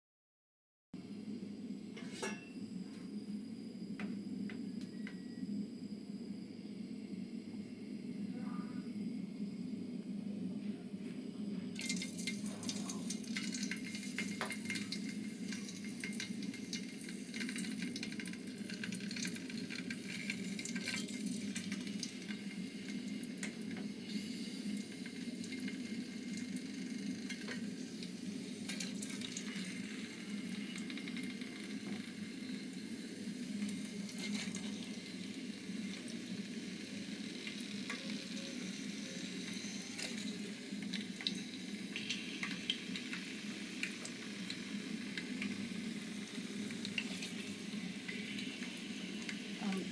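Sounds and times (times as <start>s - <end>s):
steady low hum: 1.0s - 49.9s
potatoes sizzling in hot oil: 11.8s - 49.9s.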